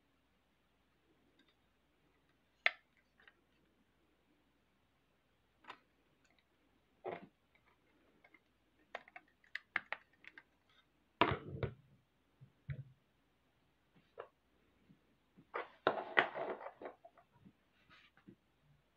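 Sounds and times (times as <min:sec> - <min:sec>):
plastic bricks clicking: 0:07.6 - 0:10.6.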